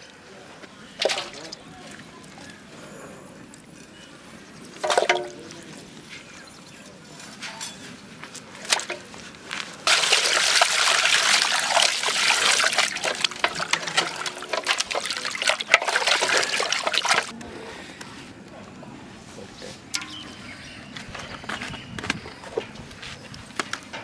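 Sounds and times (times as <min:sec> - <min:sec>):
water pouring and splashing: 0:01.0 - 0:02.4, 0:04.6 - 0:05.9, 0:09.8 - 0:17.3.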